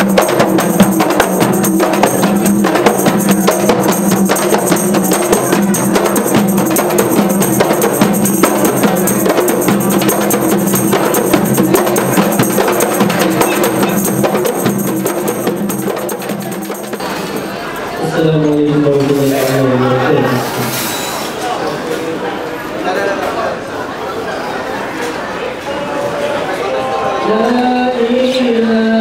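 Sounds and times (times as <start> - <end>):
frame drums struck by hand: 0.0 - 18.0.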